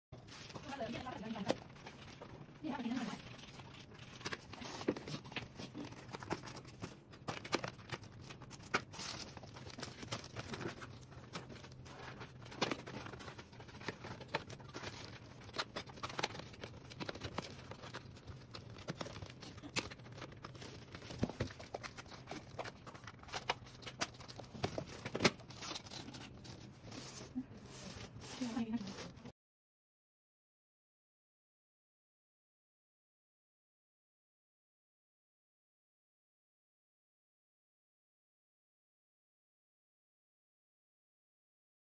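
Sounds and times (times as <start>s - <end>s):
plastic board clicking and crackling: 4.0s - 26.4s.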